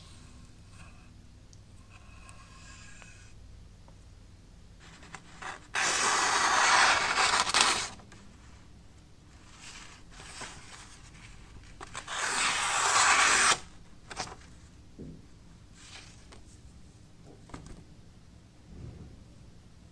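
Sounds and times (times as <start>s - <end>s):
paper rustling: 4.8s - 8.0s
knife slicing through paper: 5.4s - 8.0s, 11.9s - 13.7s.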